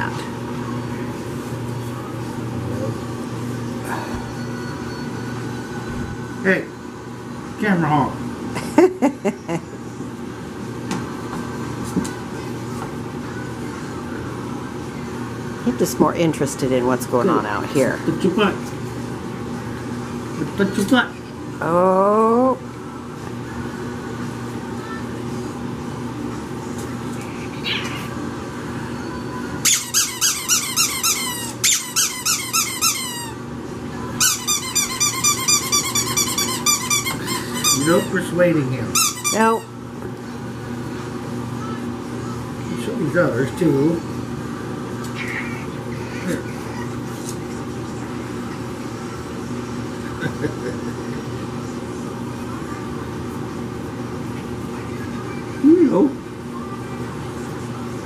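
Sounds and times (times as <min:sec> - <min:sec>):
machine hum: 0:00.0 - 0:58.0
rubber squeaky toy squeaking: 0:29.7 - 0:33.3, 0:34.2 - 0:38.1, 0:39.0 - 0:39.4.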